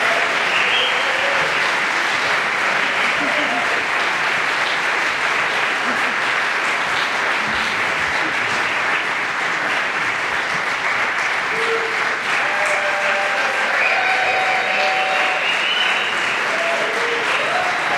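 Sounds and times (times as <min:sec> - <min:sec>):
faint calls and cheers: 0:00.0 - 0:01.7, 0:11.5 - 0:17.9
audience applauding: 0:00.0 - 0:17.9.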